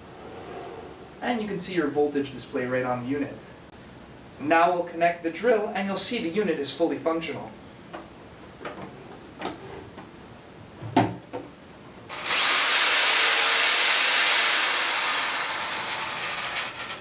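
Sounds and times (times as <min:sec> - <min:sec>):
electric drill motor whining: 0:12.1 - 0:17.0.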